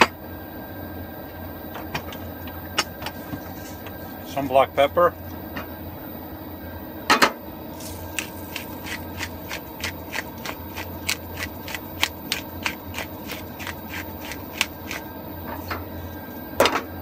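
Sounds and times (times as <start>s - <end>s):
low steady hum: 0.0s - 17.0s
pepper grinder crunching: 8.1s - 15.1s.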